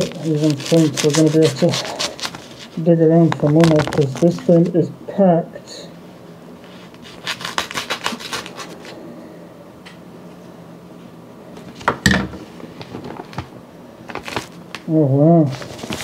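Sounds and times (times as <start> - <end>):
knife scraping paper bag: 0.0 - 4.7, 6.7 - 9.0, 15.5 - 16.0
paper crackling: 0.0 - 4.8, 6.6 - 9.0, 12.7 - 16.0.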